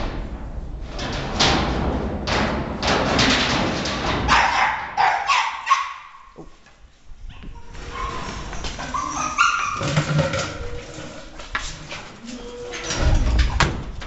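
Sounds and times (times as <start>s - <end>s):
thuds: 0.0s - 4.5s
dogs barking and yipping: 4.3s - 6.3s, 7.3s - 10.9s.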